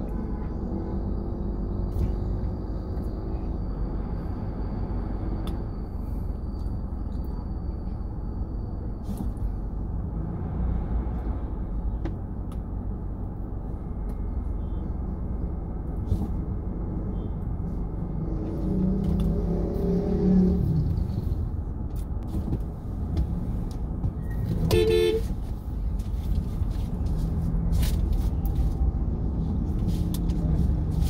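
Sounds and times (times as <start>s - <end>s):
traffic engines rumbling: 0.0s - 31.0s
engine revving: 18.0s - 21.4s.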